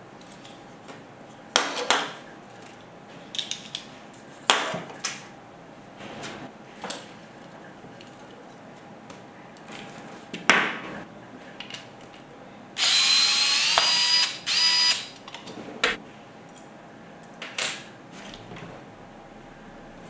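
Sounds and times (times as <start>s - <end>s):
electric screwdriver whirring: 12.8s - 15.1s.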